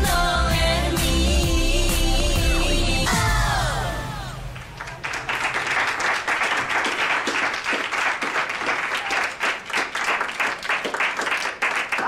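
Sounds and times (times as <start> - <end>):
group applauding: 4.4 - 12.0.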